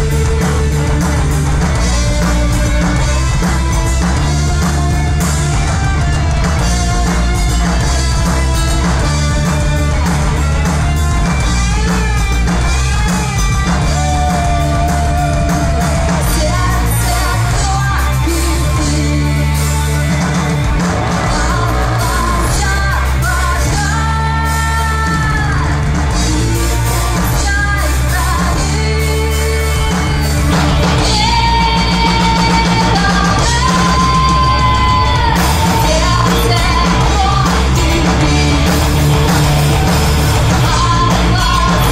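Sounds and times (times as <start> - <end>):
drum kit: 0.0 - 41.9
electric guitars: 0.0 - 41.9
woman singing: 13.8 - 20.1, 21.0 - 41.9.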